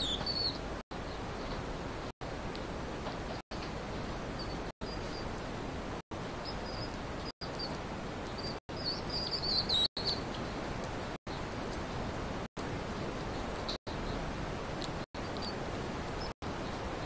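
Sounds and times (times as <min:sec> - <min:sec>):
baby hedgehog chirps: 0:00.0 - 0:00.6, 0:06.4 - 0:10.3.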